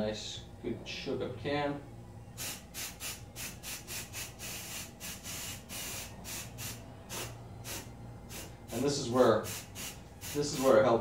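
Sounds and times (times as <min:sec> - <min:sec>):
aerosol can spraying bursts: 0:02.4 - 0:10.8.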